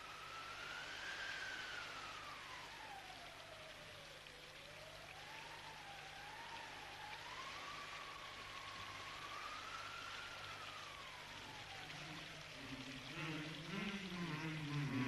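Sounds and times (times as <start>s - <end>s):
low hum: 0.0s - 15.0s
steady hiss: 0.0s - 15.0s
low humming voice: 11.7s - 15.0s.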